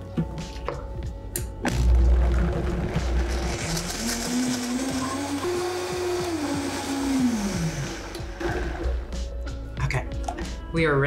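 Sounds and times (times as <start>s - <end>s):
blender motor grinding: 2.6s - 9.0s.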